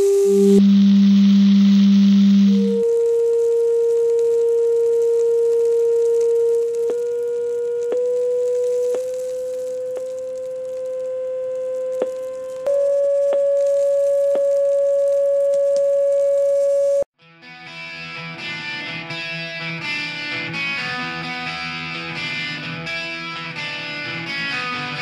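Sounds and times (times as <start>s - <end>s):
sine tone from loudspeaker: 0.0s - 17.0s
guitar music: 17.2s - 25.0s.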